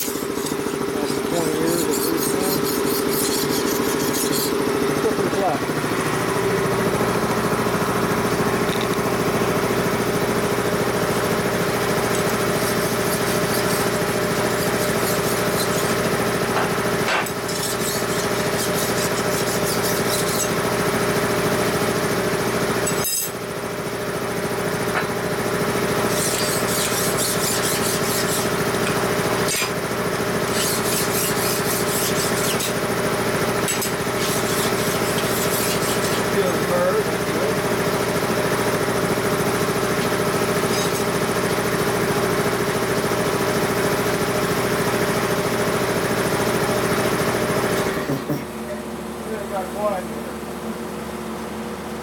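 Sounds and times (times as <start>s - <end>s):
hand file scraping steel: 0.0s - 5.5s, 11.9s - 20.8s, 22.8s - 23.4s, 26.0s - 29.8s, 30.4s - 36.7s, 39.5s - 42.2s
machinery hum: 0.0s - 43.8s.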